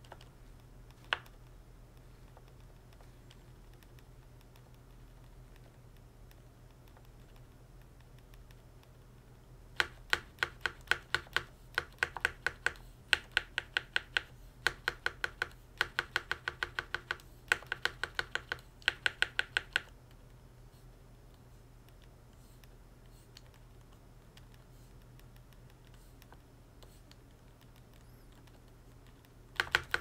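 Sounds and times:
keyboard spacebar clacking: 0:29.6 - 0:30.0.

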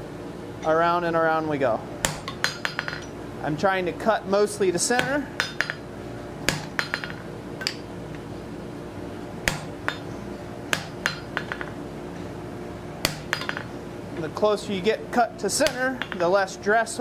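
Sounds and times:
steady hum: 0:00.0 - 0:17.0
hammer striking hot metal: 0:02.0 - 0:03.1, 0:05.0 - 0:05.8, 0:06.5 - 0:07.8, 0:09.4 - 0:10.1, 0:10.7 - 0:11.8, 0:13.0 - 0:13.7.

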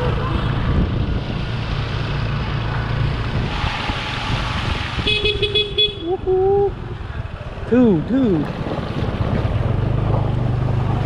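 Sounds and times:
tyres splashing through water: 0:00.0 - 0:05.9, 0:08.4 - 0:11.0
wind on microphone: 0:00.0 - 0:10.0.

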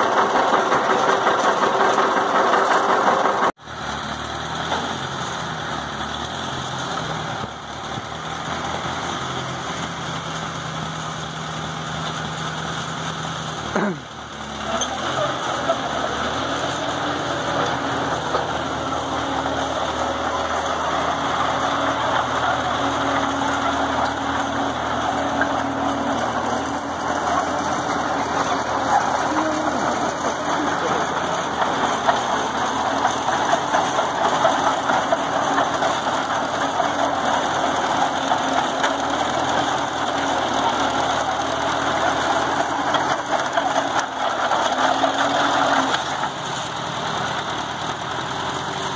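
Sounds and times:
engine running steadily: 0:00.0 - 0:48.9.

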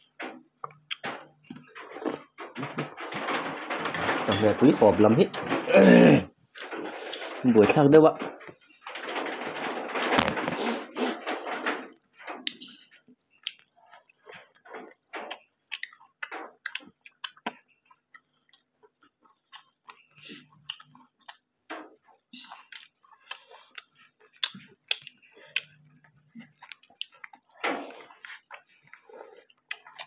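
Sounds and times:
chewing and lip-smacking: 0:13.3 - 0:14.6, 0:15.3 - 0:30.0.

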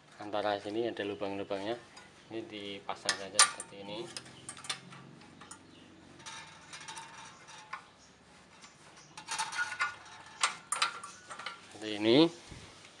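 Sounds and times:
metal parts clicking and scraping: 0:03.0 - 0:11.8.

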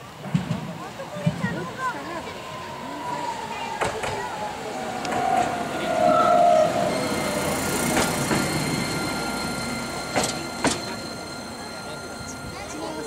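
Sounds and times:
high-pitched drive tones: 0:04.9 - 0:13.0.

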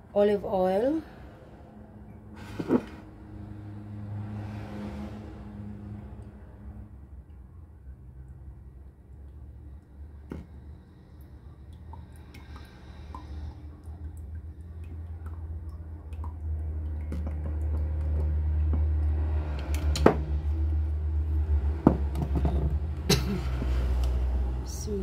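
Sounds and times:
bottle knocking on countertop: 0:21.8 - 0:22.8.

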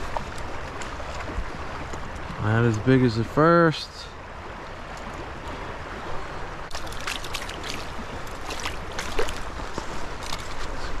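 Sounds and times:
splashes and small clicks: 0:00.0 - 0:02.9, 0:04.5 - 0:05.7, 0:06.6 - 0:11.0
creek water running: 0:00.0 - 0:11.0.

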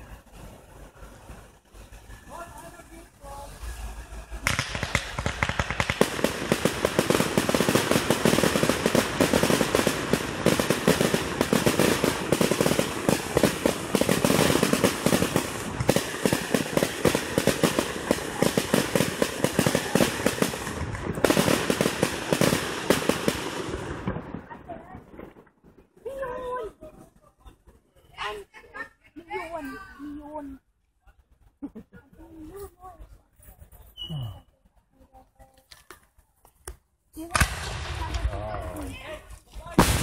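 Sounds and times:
fireworks bangs and crackles: 0:00.0 - 0:27.8, 0:37.2 - 0:40.0.

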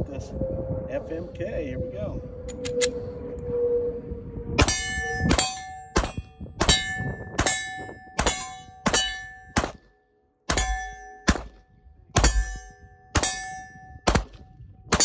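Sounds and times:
steel plate ringing clang: 0:04.6 - 0:09.6, 0:10.5 - 0:11.6, 0:12.2 - 0:14.2
pistol shots: 0:08.2 - 0:09.9, 0:10.5 - 0:11.6, 0:12.2 - 0:12.4, 0:14.0 - 0:15.0.

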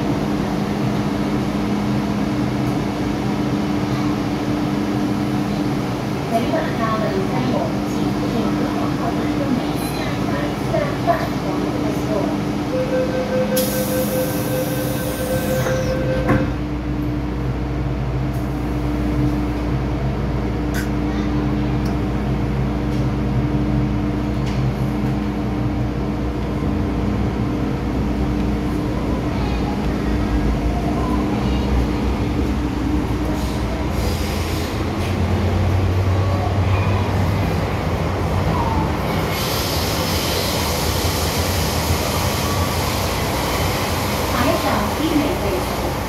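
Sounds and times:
train rumbling: 0:00.0 - 0:46.0
door warning beeps: 0:12.7 - 0:16.5
train doors shutting knock: 0:13.5 - 0:16.6.

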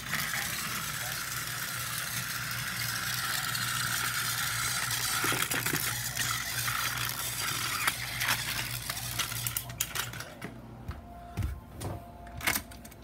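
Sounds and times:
toy train motor whirring: 0:00.0 - 0:10.4.

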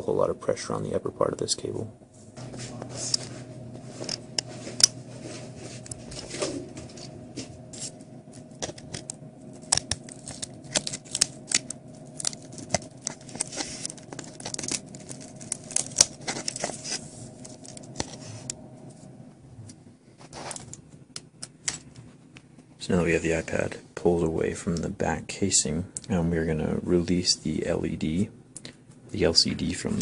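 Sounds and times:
tablet being taken apart: 0:07.8 - 0:18.6.

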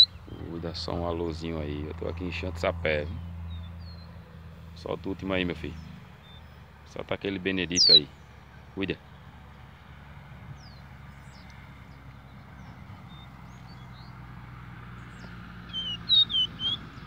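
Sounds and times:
bird whistling song: 0:00.0 - 0:00.4, 0:07.7 - 0:08.2, 0:15.1 - 0:17.0
faint bird chirps: 0:00.0 - 0:00.8, 0:07.6 - 0:08.3, 0:15.0 - 0:17.0
wind: 0:00.0 - 0:17.0.

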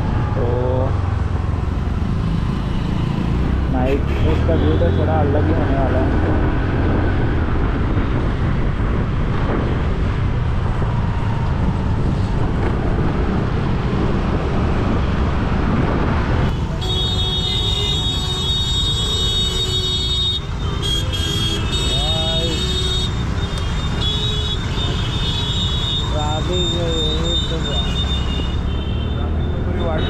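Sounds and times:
motorbike road noise: 0:00.0 - 0:30.0
wind rush: 0:06.0 - 0:16.6.

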